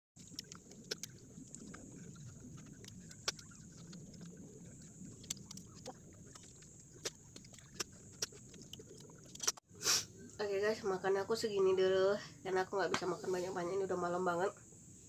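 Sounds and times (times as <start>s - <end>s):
person chewing: 5.1s - 9.6s.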